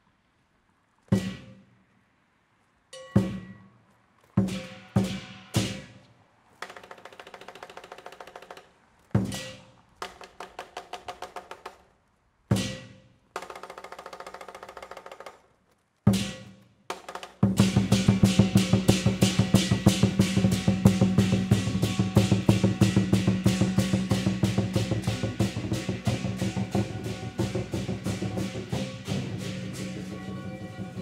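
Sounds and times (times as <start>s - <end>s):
drum strikes and rolls: 1.1s - 1.6s, 3.0s - 3.6s, 4.4s - 6.0s, 6.6s - 11.8s, 12.5s - 15.4s, 16.1s - 31.0s
cymbals crashing: 17.6s - 31.0s.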